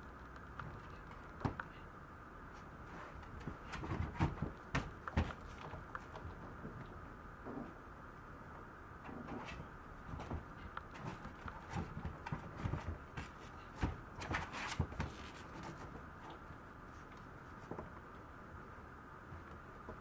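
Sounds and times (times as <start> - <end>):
puppy scratching on floor: 10.9 - 17.8.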